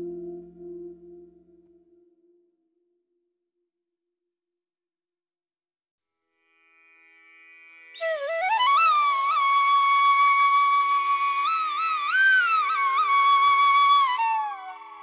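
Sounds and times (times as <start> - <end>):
solo flute melody: 0.0 - 1.5, 8.0 - 15.0
faint steady drone: 0.0 - 1.6.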